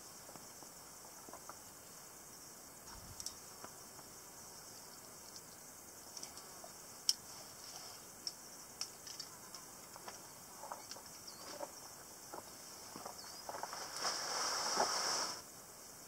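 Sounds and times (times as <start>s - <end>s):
insects hissing: 0.0s - 16.0s
climber clicks and scrapes on rock: 12.4s - 15.4s.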